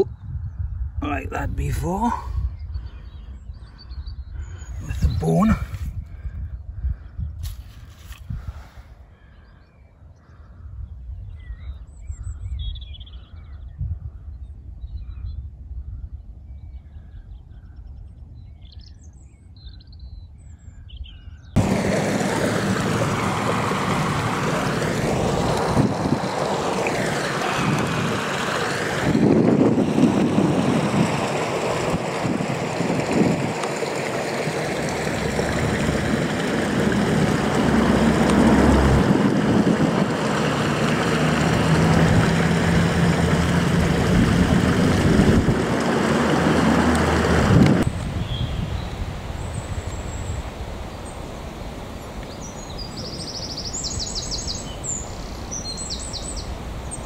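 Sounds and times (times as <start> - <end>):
loud steady rushing noise: 21.6 - 48.1.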